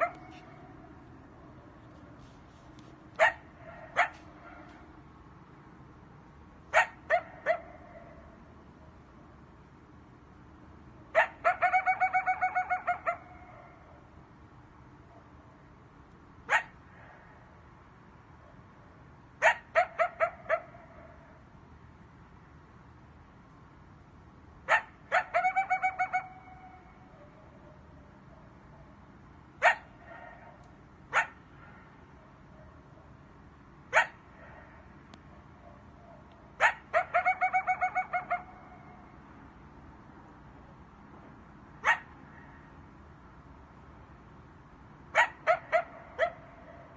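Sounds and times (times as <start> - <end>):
coyote barking: 0.0 - 1.0, 3.2 - 4.9, 6.7 - 8.4, 11.1 - 14.1, 16.4 - 17.4, 19.4 - 21.4, 24.6 - 29.0, 29.6 - 33.2, 33.9 - 39.2, 41.8 - 42.8, 45.1 - 46.9
coyote yipping: 0.0 - 1.0, 3.2 - 4.8, 6.7 - 8.3, 11.1 - 14.0, 16.5 - 17.3, 19.4 - 21.4, 24.7 - 29.0, 29.6 - 32.8, 33.9 - 34.8, 35.6 - 39.2, 41.8 - 42.7, 45.1 - 46.9.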